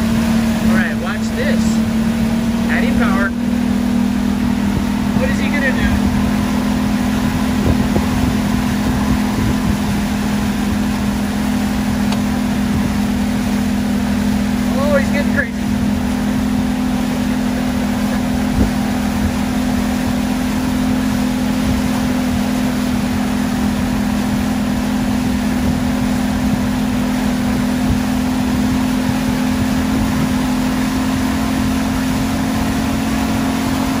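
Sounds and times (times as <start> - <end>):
boat engine droning: 0.0 - 34.0.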